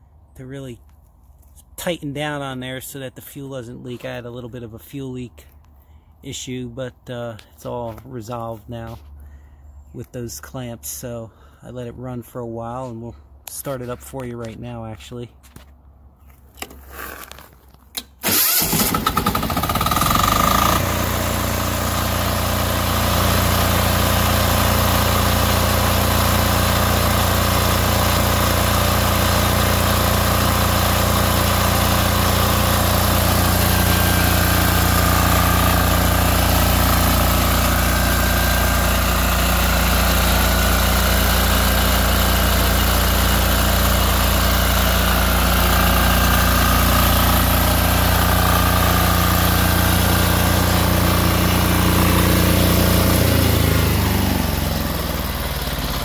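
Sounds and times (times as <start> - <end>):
diesel generator engine droning: 17.9 - 56.0.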